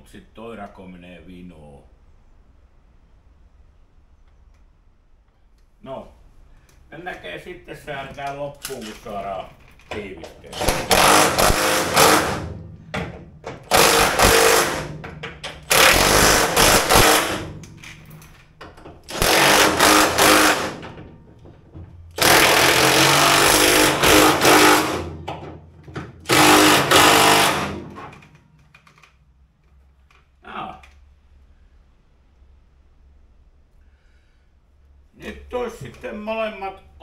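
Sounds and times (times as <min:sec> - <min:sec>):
cordless impact driver bursts: 0:10.6 - 0:12.6, 0:13.6 - 0:15.0, 0:15.6 - 0:17.6, 0:19.1 - 0:20.8, 0:22.2 - 0:25.2, 0:26.2 - 0:28.1.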